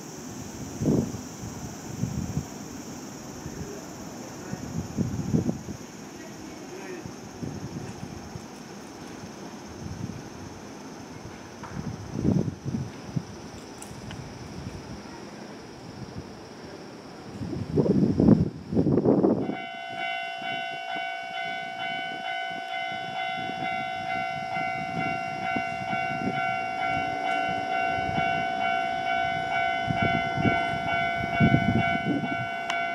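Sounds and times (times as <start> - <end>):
train rumble and wheel clatter: 0.0 - 32.9
level crossing warning bell: 19.4 - 32.9.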